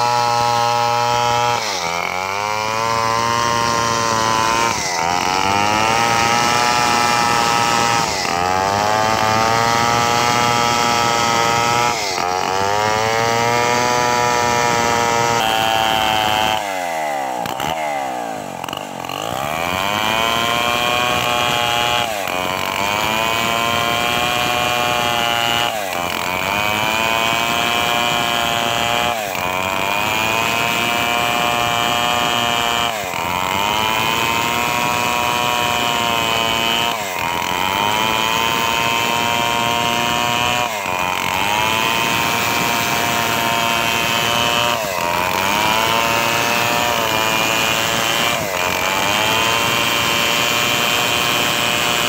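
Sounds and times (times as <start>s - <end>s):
chainsaw cutting log: 0.0s - 52.0s.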